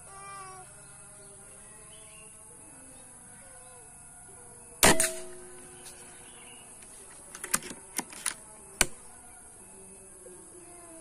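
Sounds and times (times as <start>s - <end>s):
air rifle shot: 4.8s - 5.6s
rifle handling clicks: 6.8s - 9.0s.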